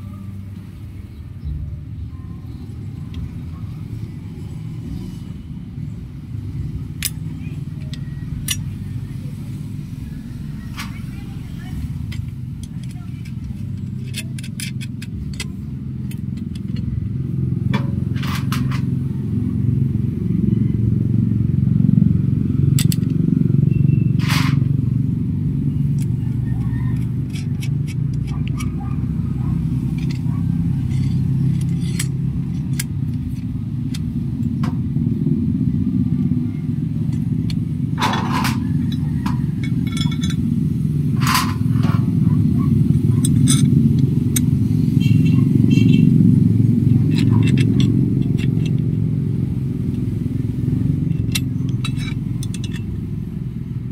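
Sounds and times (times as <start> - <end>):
engine rumbling: 0.0 - 53.9
metal parts clinking: 6.9 - 8.9, 10.6 - 17.0, 17.7 - 19.0, 22.8 - 23.2, 25.9 - 34.7, 36.9 - 46.0, 46.6 - 53.9.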